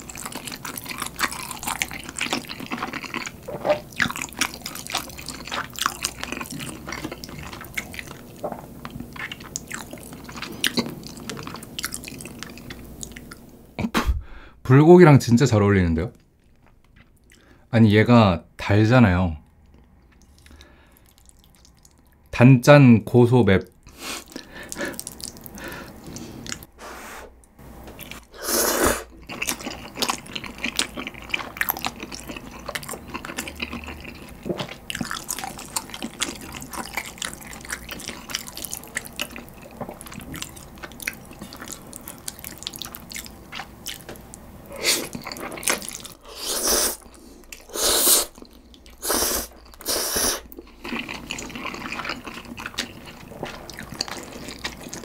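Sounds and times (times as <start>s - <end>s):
wet chewing and smacking: 0.0s - 13.4s, 19.6s - 22.3s, 23.8s - 26.7s, 29.0s - 46.3s, 47.0s - 55.0s
slurping noodles: 28.2s - 30.6s, 44.7s - 48.4s, 49.0s - 55.0s.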